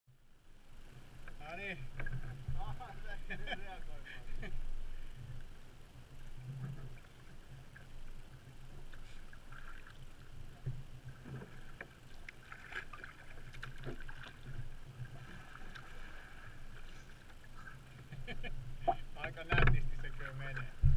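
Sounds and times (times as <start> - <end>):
water lapping against hull: 0.7 - 20.9
small splashes: 9.0 - 10.3, 11.1 - 17.8.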